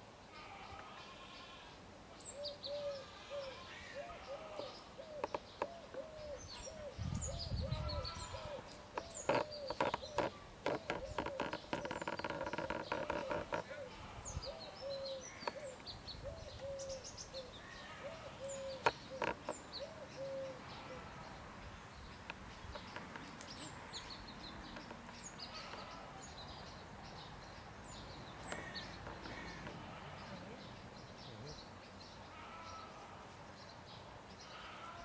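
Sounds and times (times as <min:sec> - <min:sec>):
small birds chirping: 0:00.0 - 0:35.0
low hooting bird call: 0:02.3 - 0:21.3.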